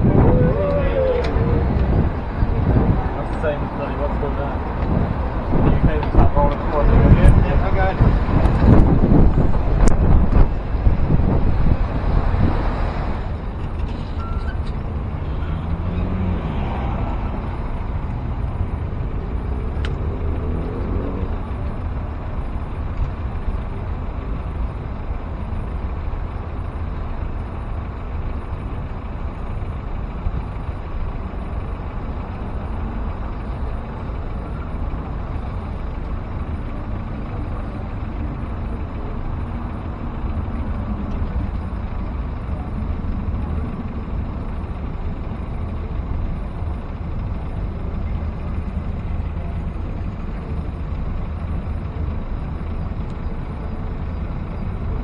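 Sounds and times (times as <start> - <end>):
wind on microphone: 0.0 - 3.2, 4.8 - 13.2
road traffic rumble: 0.0 - 55.0.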